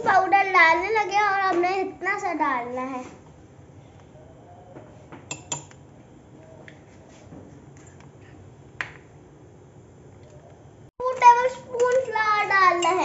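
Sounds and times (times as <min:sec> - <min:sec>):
teaspoon clinking against cups: 0:05.3 - 0:05.8.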